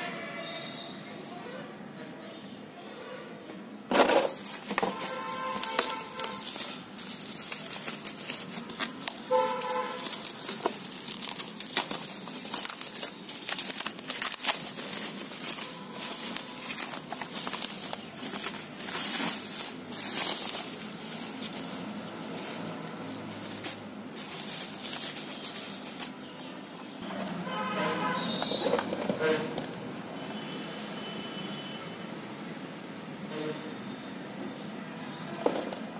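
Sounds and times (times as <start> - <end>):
bubble wrap crinkling: 3.9 - 27.5.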